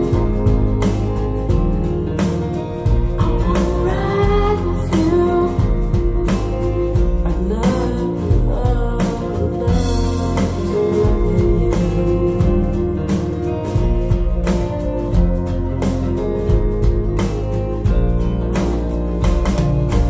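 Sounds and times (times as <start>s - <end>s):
guitar and bass: 0.0s - 20.0s
woman singing: 3.2s - 14.1s.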